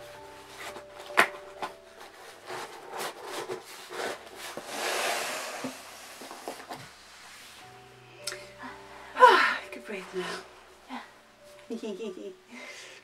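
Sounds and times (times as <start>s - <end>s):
tissue paper rustling: 0.1s - 7.8s.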